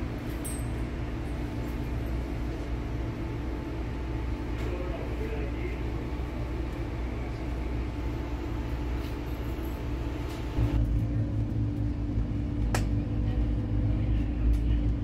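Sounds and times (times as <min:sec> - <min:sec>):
vehicle interior rumble: 0:06.0 - 0:15.0.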